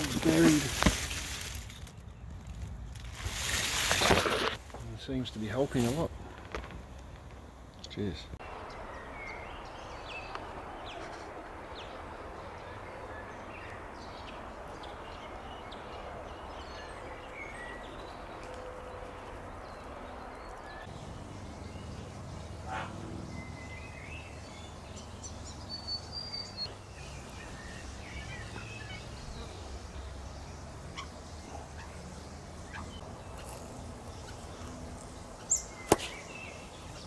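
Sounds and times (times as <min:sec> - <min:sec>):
bird chirps: 0:32.7 - 0:37.0.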